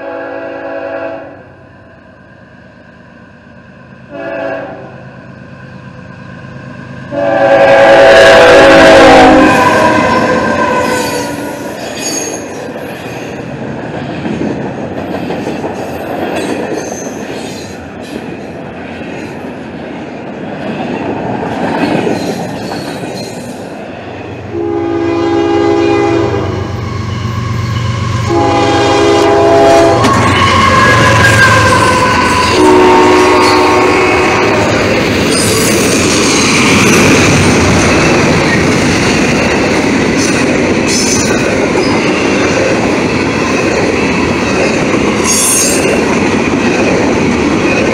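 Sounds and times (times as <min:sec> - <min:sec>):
locomotive horn blasts: 0:00.0 - 0:01.4, 0:04.1 - 0:05.0, 0:07.1 - 0:11.4, 0:24.5 - 0:26.7, 0:27.9 - 0:34.8
freight train rolling past: 0:00.0 - 0:47.9.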